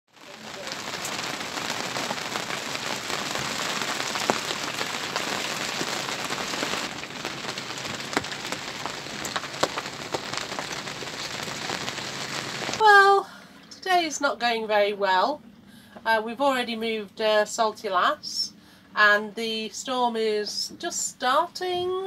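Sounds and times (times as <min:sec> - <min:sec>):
rain on a boat deck: 0:00.1 - 0:14.4.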